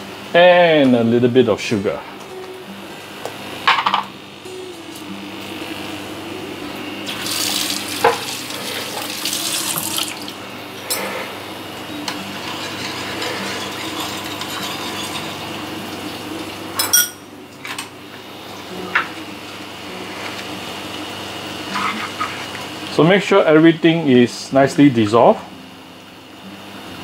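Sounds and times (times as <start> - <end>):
liquid swishing in a pan: 12.4 - 15.4
spoon scraping and clinking on pan: 12.4 - 15.4.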